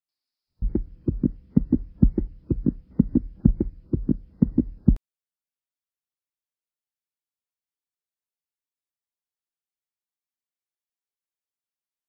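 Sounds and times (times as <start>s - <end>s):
heartbeat thumps: 0.6s - 5.0s.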